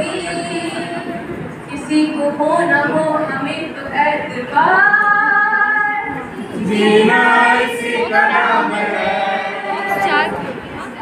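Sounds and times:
woman singing: 1.8 - 6.2.

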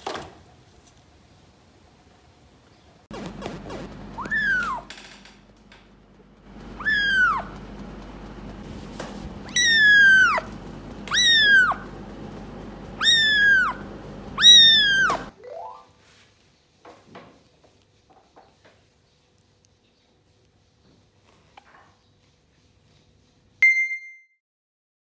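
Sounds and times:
kitten mewing: 4.2 - 4.9, 6.8 - 7.6, 9.4 - 10.5, 11.1 - 11.8, 13.0 - 13.8, 14.4 - 15.3.

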